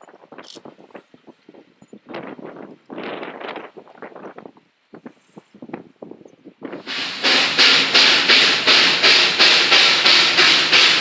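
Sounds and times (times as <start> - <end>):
steam locomotive chuffing: 6.8 - 11.0.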